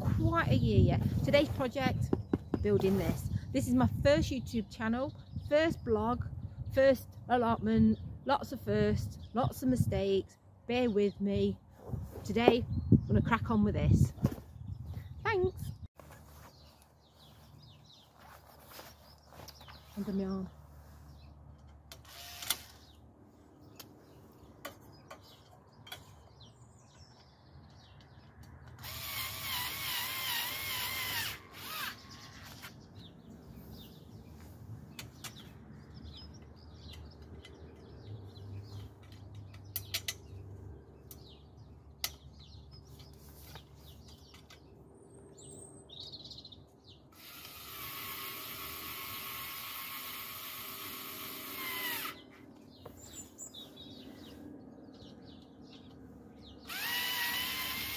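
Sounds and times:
power screwdriver motor whine: 47.2 - 52.2, 56.7 - 57.9.

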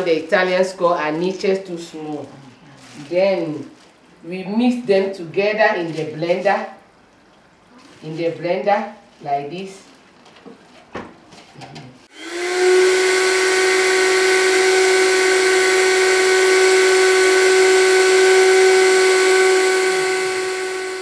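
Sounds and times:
electric spice grinder whining: 12.1 - 21.0.

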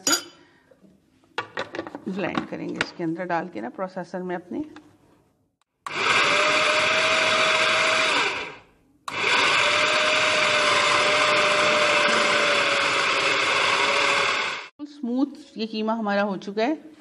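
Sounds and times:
food processor motor whining: 5.8 - 14.7.

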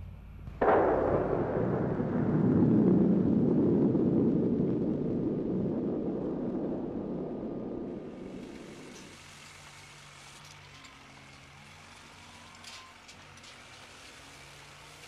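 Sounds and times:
low rumble of falling rock: 0.4 - 9.2
explosive blast bang: 0.6 - 8.9.

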